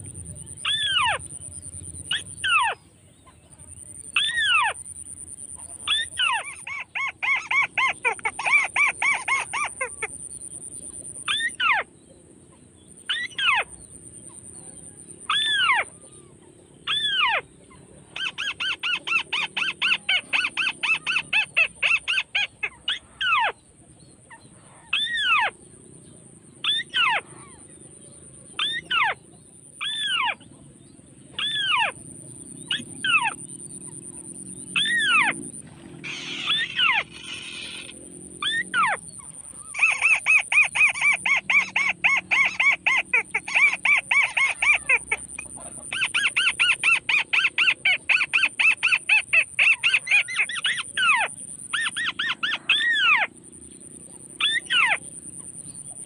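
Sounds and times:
rapid bird chattering: 0.0s - 2.8s, 3.6s - 11.8s, 18.2s - 23.6s, 31.4s - 56.0s
bird calling: 0.0s - 11.9s, 28.4s - 30.5s, 31.4s - 56.0s.

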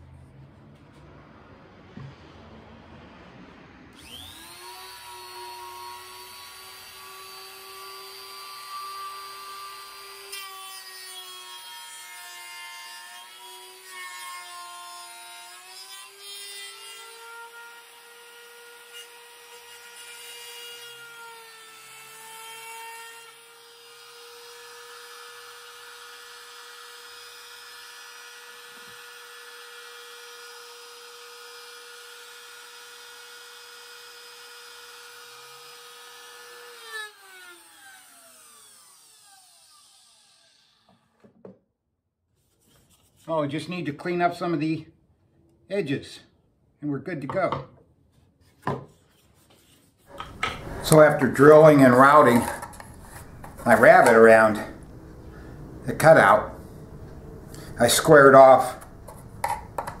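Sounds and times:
router cutting plywood: 3.9s - 41.0s.

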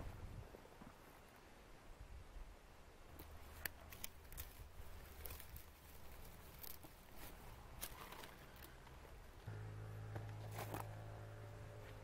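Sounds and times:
low steady hum: 2.1s - 12.0s
faint sharp clicks and crackles: 3.1s - 7.0s.

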